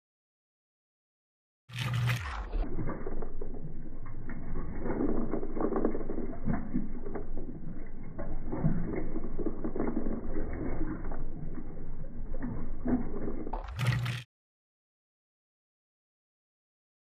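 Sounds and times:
washer agitator rumbling and clacking: 1.7s - 14.2s.

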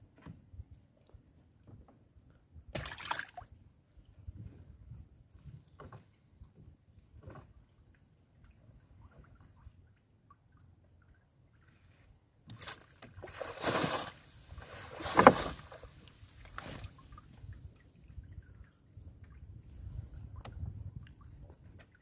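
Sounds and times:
wet net splashing in water: 2.7s - 3.4s, 12.6s - 15.9s.

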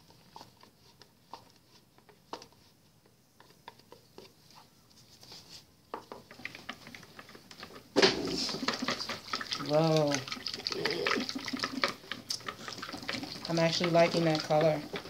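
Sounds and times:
whisk clicking against bucket: 0.0s - 4.6s, 5.9s - 15.0s.

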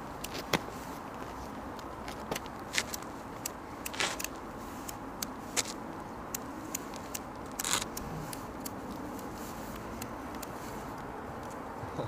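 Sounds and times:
boots scuffing on gritty path: 0.0s - 3.2s, 3.9s - 4.9s, 5.5s - 5.8s
outdoor background noise: 0.0s - 12.0s.

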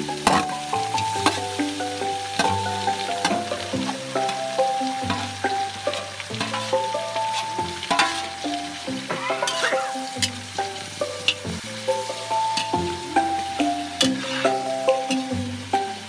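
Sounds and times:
background music with held notes: 0.0s - 16.0s
meat sizzling in a wok: 0.0s - 16.0s
utensil clinking against pan: 2.4s - 11.5s
spatula scraping a wok: 5.0s - 11.5s, 14.0s - 15.3s.

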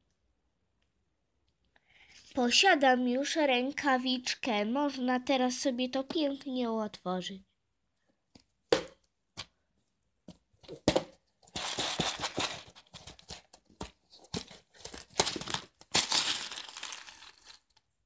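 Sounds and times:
hand rustling through dry seeds: 16.0s - 17.6s.

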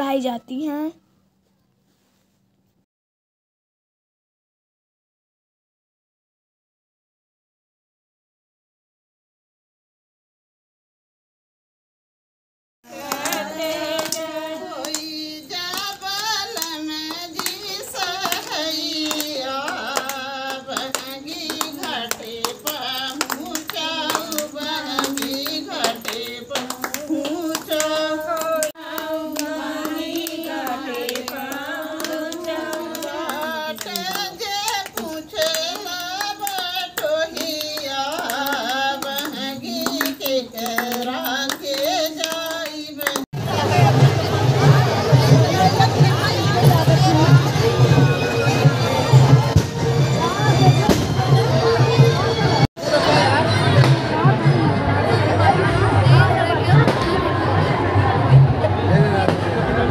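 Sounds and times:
women singing folk song: 12.9s - 43.8s
hand claps: 13.0s - 43.3s.

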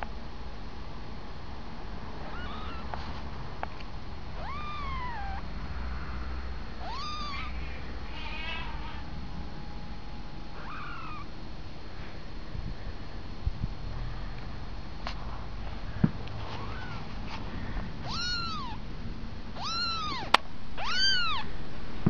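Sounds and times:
steady low hum: 0.0s - 22.0s
meow-like animal calls: 2.3s - 2.9s, 4.4s - 5.4s, 6.8s - 9.0s, 10.6s - 11.3s, 16.6s - 17.0s, 18.0s - 18.8s, 19.6s - 21.5s.

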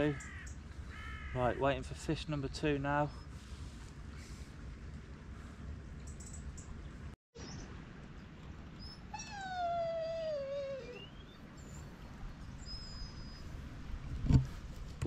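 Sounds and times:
animal whining call: 8.8s - 11.9s.

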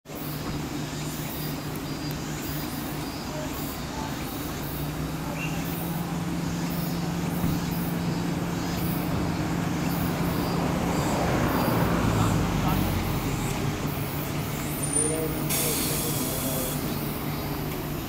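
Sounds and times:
road traffic engine hum: 0.1s - 18.0s
rhythmic high-pitched chirping: 0.3s - 11.9s.

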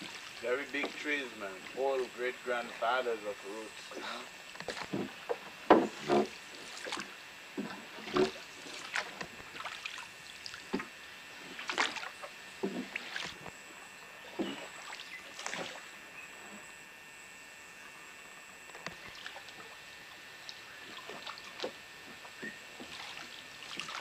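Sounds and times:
oars splashing in water: 0.0s - 1.8s, 3.9s - 13.5s, 14.2s - 15.9s, 18.9s - 19.8s, 20.4s - 24.0s.

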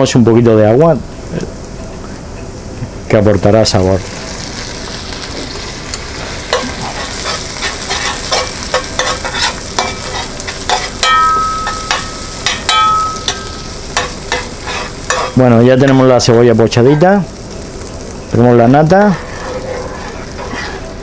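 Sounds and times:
food sizzling in butter: 0.6s - 21.0s
utensil scraping and knocking pan: 6.6s - 13.4s, 14.0s - 15.4s.

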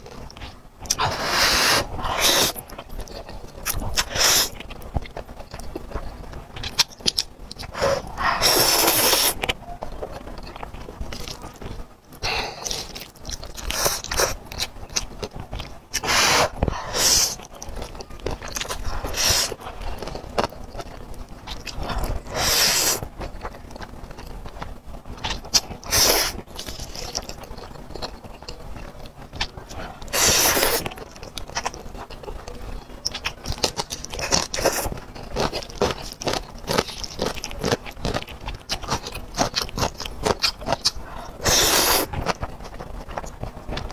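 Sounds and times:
wet chewing: 0.0s - 43.9s
loud noodle slurping: 0.9s - 2.6s, 22.0s - 23.0s, 30.1s - 30.8s, 41.3s - 42.1s.

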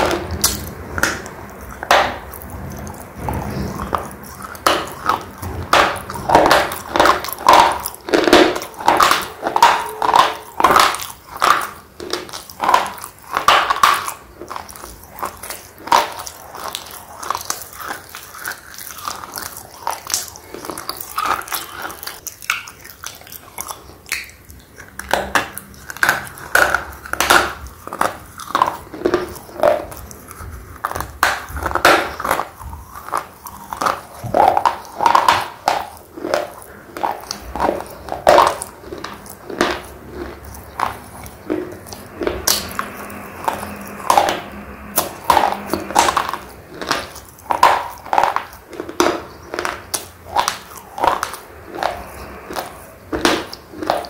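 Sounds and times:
chewing crunchy pencils: 0.0s - 54.0s.

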